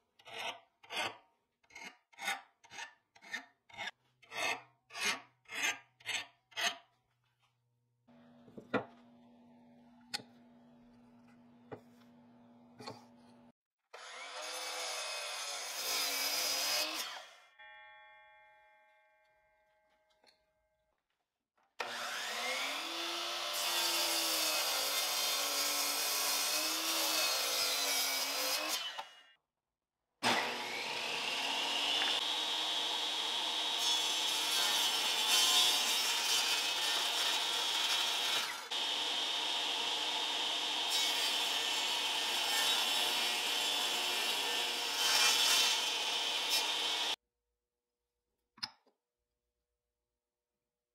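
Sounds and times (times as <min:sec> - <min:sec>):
miter saw cutting wood: 0:14.0 - 0:17.3, 0:21.8 - 0:29.2, 0:30.2 - 0:47.2
table saw whining: 0:21.8 - 0:29.1, 0:30.2 - 0:47.2
power saw humming: 0:30.2 - 0:35.3, 0:38.7 - 0:42.2.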